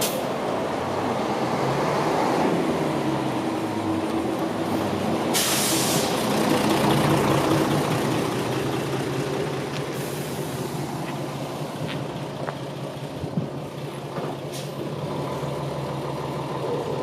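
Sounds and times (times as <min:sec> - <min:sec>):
bus engine passing: 0:00.0 - 0:17.0
air brake hisses: 0:05.3 - 0:06.2.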